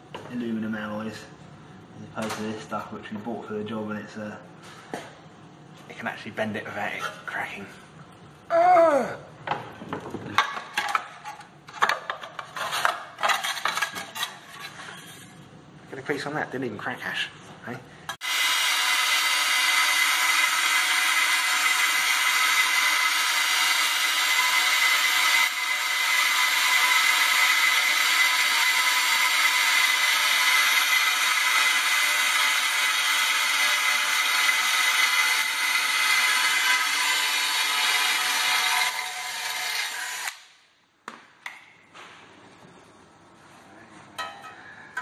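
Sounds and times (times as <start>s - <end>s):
drill bit cutting metal: 18.2s - 40.4s.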